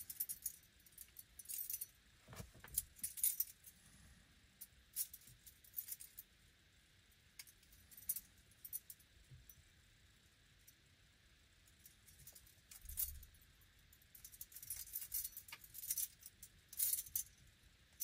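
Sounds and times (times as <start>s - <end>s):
metallic jingling and clinking: 0.0s - 2.0s, 2.7s - 3.8s, 11.7s - 17.4s.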